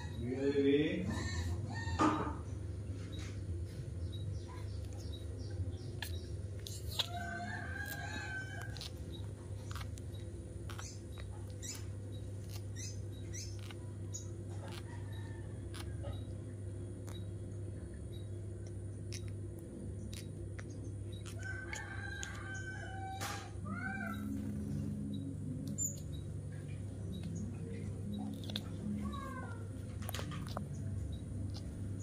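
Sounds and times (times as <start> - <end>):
steady low hum: 0.0 - 32.0
rooster crowing: 1.0 - 2.4, 7.0 - 8.9, 14.9 - 16.2, 21.3 - 24.2.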